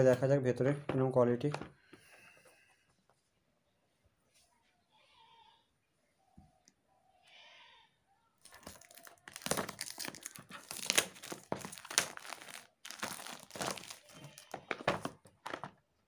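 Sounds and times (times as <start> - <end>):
plastic wrap crinkling: 8.4 - 15.8
scissors slitting plastic: 8.5 - 15.7.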